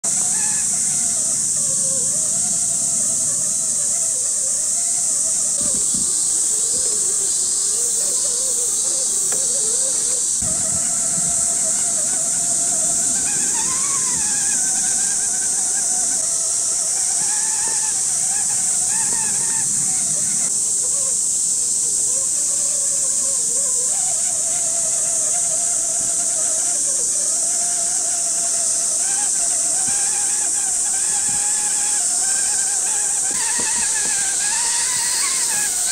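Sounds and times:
high-pitched insect drone: 0.0s - 35.9s
electric motor and gear whine: 8.8s - 20.6s.

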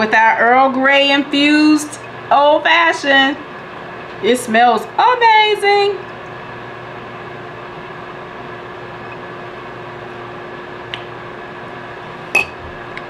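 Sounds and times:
fan-like hum: 0.0s - 13.0s
glass clinking on stone countertop: 12.4s - 12.7s.

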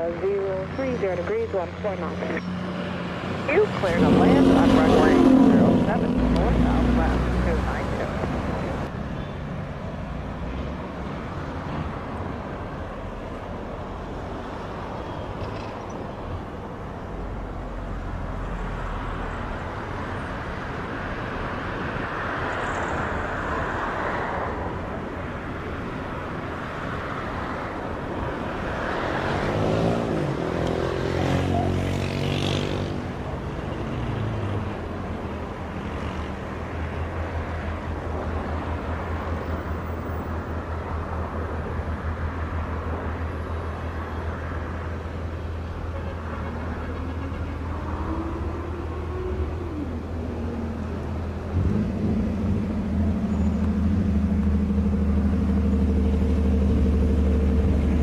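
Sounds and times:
vehicle passing: 0.0s - 13.4s, 17.0s - 58.0s
engine noise: 0.0s - 58.0s.

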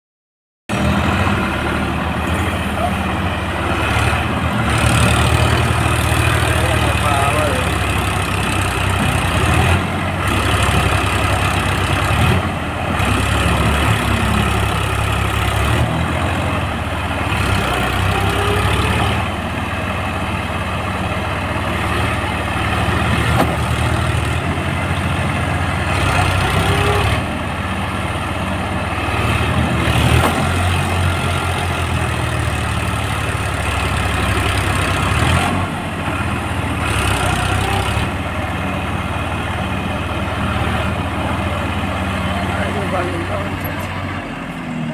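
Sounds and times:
tractor diesel engine under load: 0.7s - 44.9s.

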